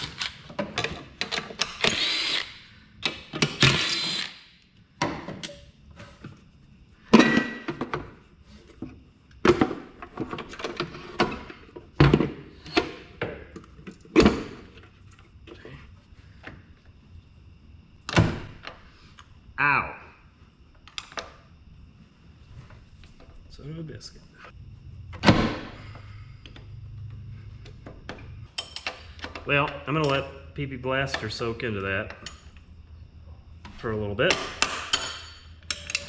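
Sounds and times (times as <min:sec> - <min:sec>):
cordless drill whirring: 0:01.8 - 0:02.5, 0:03.6 - 0:04.4.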